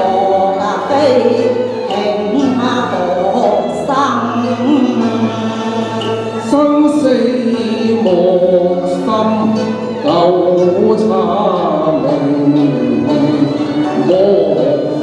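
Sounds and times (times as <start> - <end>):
man singing: 0.0 - 3.7, 6.1 - 15.0
woman singing: 0.0 - 5.9
musical accompaniment: 0.0 - 15.0.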